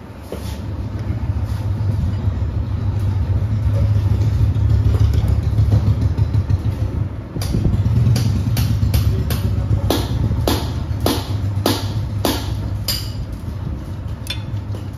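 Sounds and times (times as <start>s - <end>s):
spanner clicking on metal: 14.2s - 14.8s.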